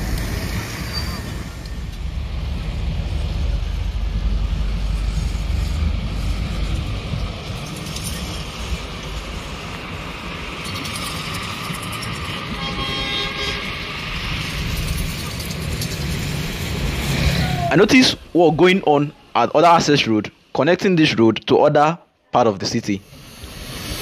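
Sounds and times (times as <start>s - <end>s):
road noise with low rumble: 0.0s - 24.0s
vehicle horn: 12.4s - 14.0s.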